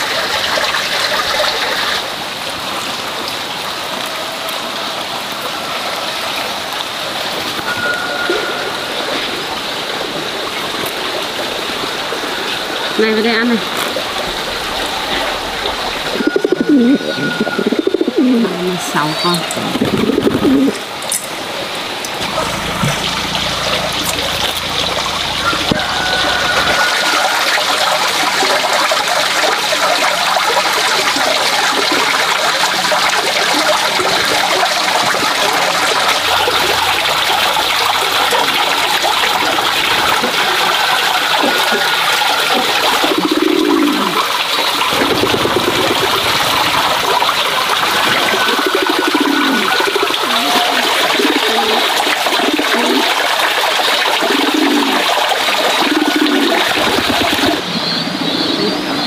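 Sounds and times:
pigeon cooing: 14.2s - 20.9s, 35.3s - 57.6s
water pouring into plastic basin: 19.6s - 57.6s.

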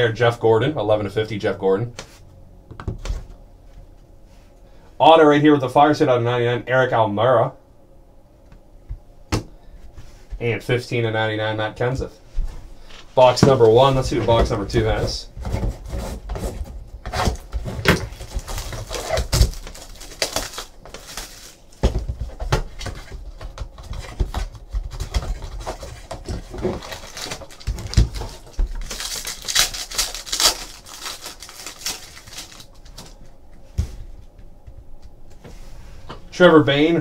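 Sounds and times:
card packs rustling: 12.8s - 33.4s
plastic shrink wrap crinkling: 17.1s - 33.3s.

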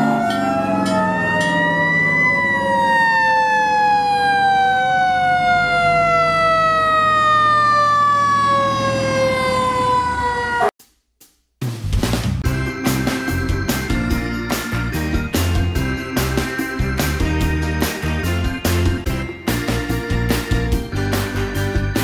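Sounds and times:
truck engines running: 0.0s - 10.7s, 12.4s - 22.0s
fire truck siren wailing: 0.0s - 10.8s.

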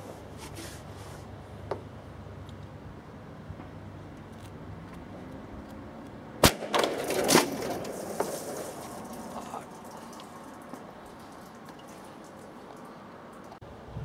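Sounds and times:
plastic bottle exploding: 6.4s - 9.3s.

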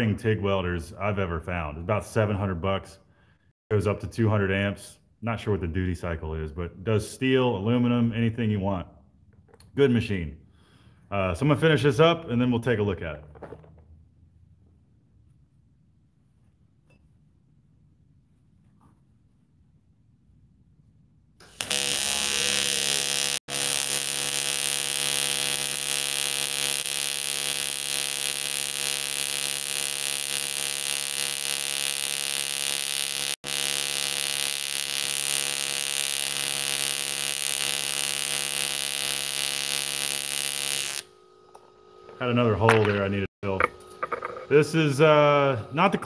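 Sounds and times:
welding arc buzzing and hissing: 21.4s - 42.0s.

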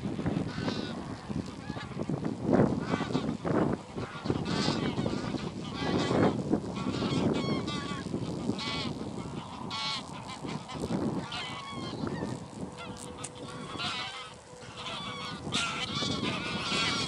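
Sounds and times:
geese honking: 0.0s - 17.0s.

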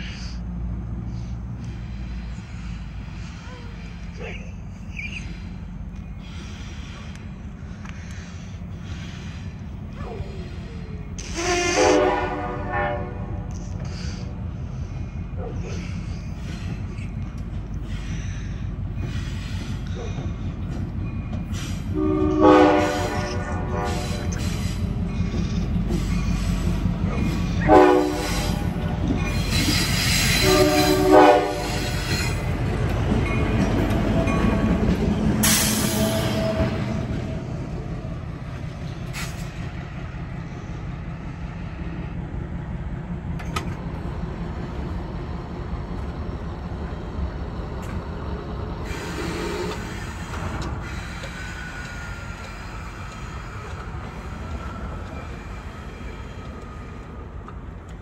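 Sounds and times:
train engine and wheels rumbling: 0.0s - 58.0s
locomotive horn blasts: 11.2s - 13.5s, 21.9s - 24.3s, 27.6s - 28.8s, 30.2s - 32.2s, 35.8s - 37.4s.

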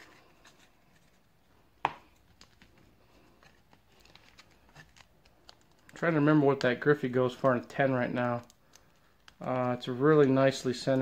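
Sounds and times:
cards and foil pack rustling: 0.0s - 11.0s.

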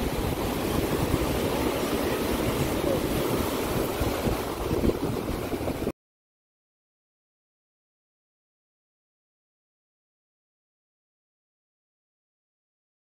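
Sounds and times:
surf: 0.0s - 5.9s
wind buffeting microphone: 0.0s - 5.9s.

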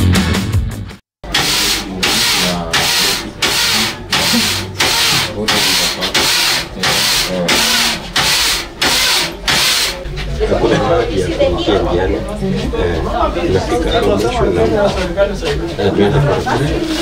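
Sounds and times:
knitting machine carriage rasping: 1.2s - 10.0s
faint voices: 1.3s - 17.0s.

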